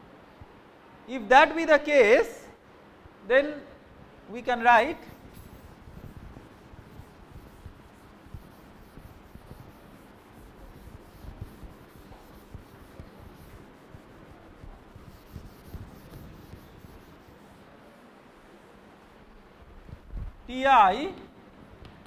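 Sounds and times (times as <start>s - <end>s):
chalk scratching and tapping: 5.0s - 17.7s.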